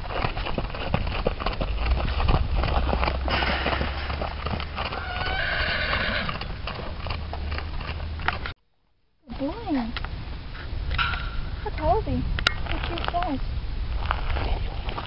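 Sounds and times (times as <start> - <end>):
horse hooves trotting on gravel: 0.0 - 8.6, 10.9 - 15.0
horse whinnying: 3.2 - 6.8.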